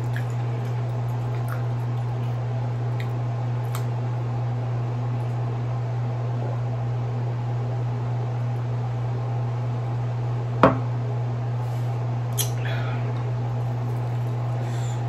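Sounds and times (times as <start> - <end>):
steady low hum: 0.0 - 15.0
glass set down on wooden table: 10.6 - 10.9.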